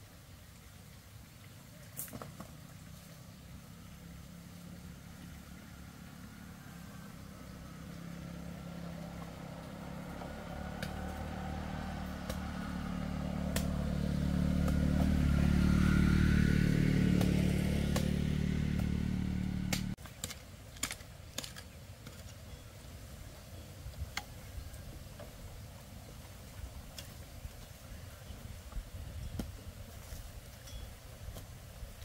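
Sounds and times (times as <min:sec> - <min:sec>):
engine running: 0:02.1 - 0:20.0.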